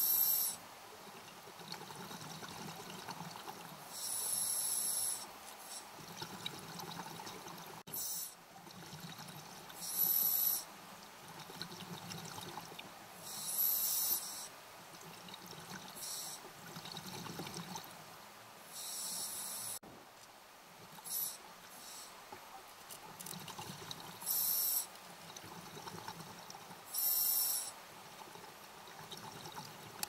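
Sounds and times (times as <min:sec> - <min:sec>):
underwater bubbling: 0:01.0 - 0:04.4, 0:05.9 - 0:07.8, 0:25.2 - 0:30.0.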